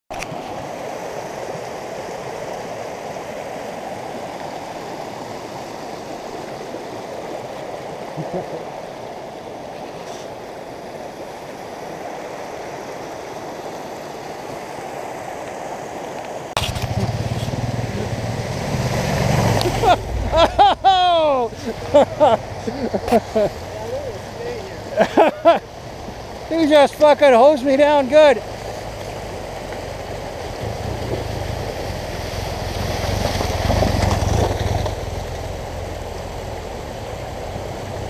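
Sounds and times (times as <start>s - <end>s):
creek water over rocks: 0.1s - 38.0s
motorcycle engine running: 16.6s - 21.2s.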